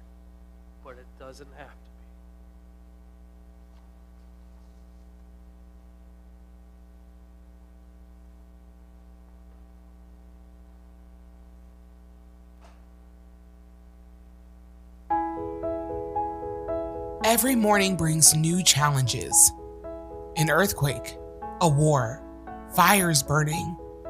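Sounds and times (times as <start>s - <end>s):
electrical mains hum: 0.0s - 15.3s.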